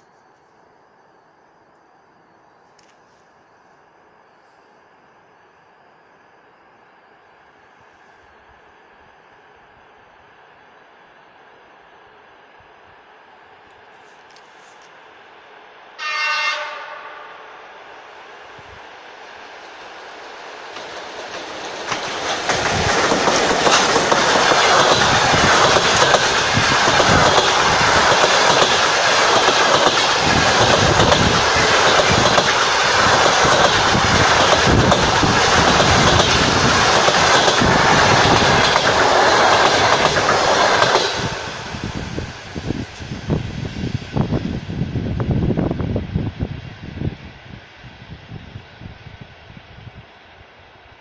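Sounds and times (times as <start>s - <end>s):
train wheels clacking on rails: 20.6s - 43.1s.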